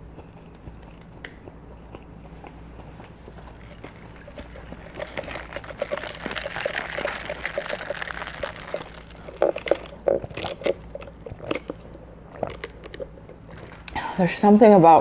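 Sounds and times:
gulping swallows: 0:00.0 - 0:14.0
soda slurped through a straw: 0:03.2 - 0:13.9.

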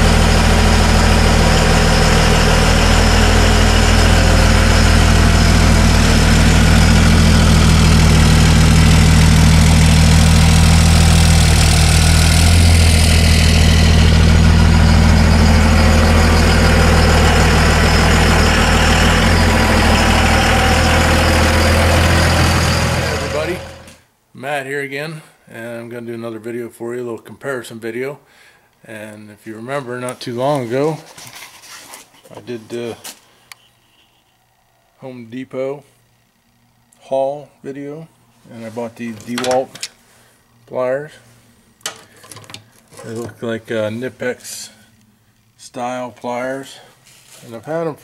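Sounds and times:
pickup truck engine idling: 0:00.0 - 0:23.9.

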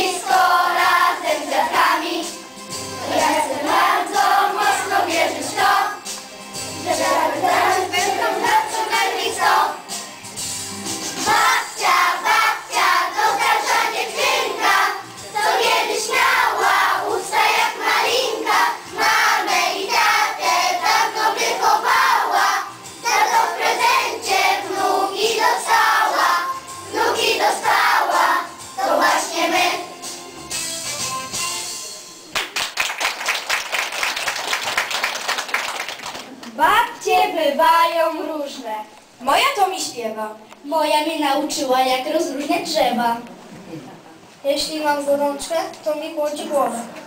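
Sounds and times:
children singing: 0:00.0 - 0:02.4, 0:03.0 - 0:06.1, 0:06.8 - 0:09.8, 0:11.2 - 0:29.9
musical accompaniment: 0:00.0 - 0:35.8.

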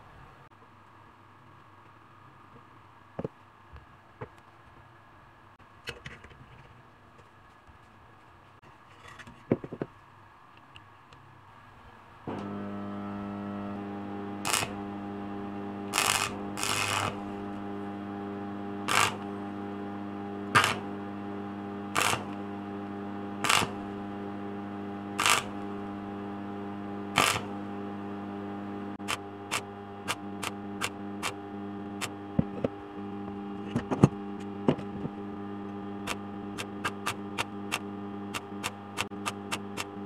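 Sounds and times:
arc welder humming: 0:12.2 - 0:40.0
welding arc crackling and popping: 0:13.7 - 0:27.8, 0:28.9 - 0:40.0.

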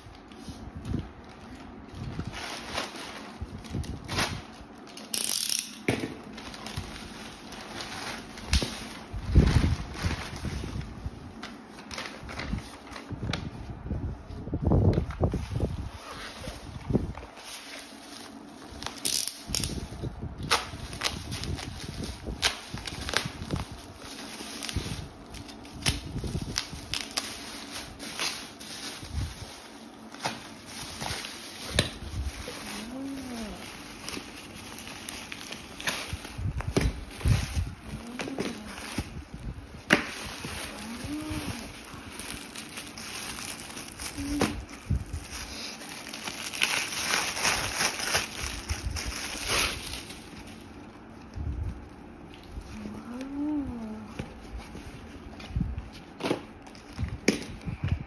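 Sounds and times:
plastic bag crinkling: 0:00.0 - 0:57.3
box cutter slitting plastic bag: 0:15.3 - 0:39.2, 0:39.8 - 0:50.6.

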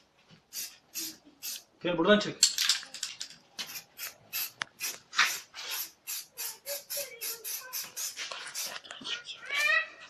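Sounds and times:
spray can hissing bursts: 0:00.5 - 0:01.7, 0:03.7 - 0:08.7.

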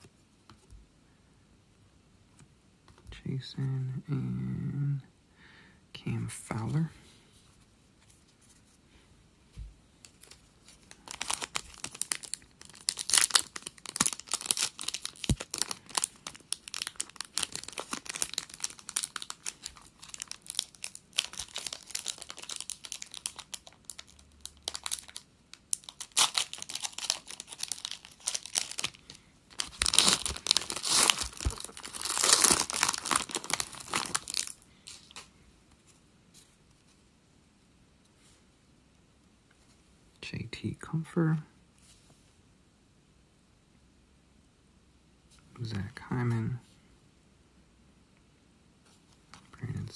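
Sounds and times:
foil wrapper tearing and crinkling: 0:10.1 - 0:35.3.

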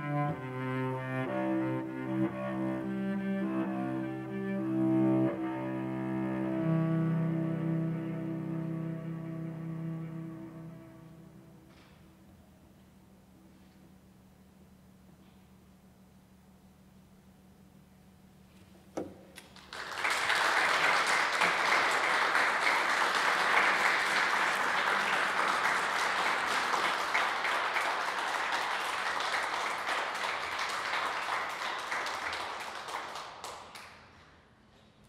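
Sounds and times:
audience applauding: 0:19.4 - 0:34.2.

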